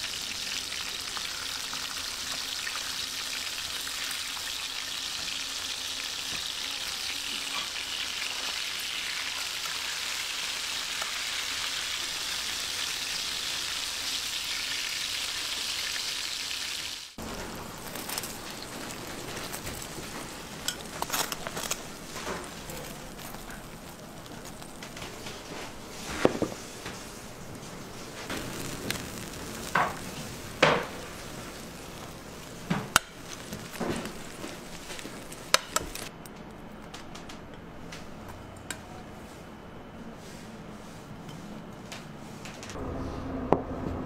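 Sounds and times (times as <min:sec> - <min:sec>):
butter sizzling on a hot tray: 0:00.0 - 0:27.2, 0:27.8 - 0:36.1
crackles and clicks: 0:17.2 - 0:25.9, 0:28.1 - 0:38.1.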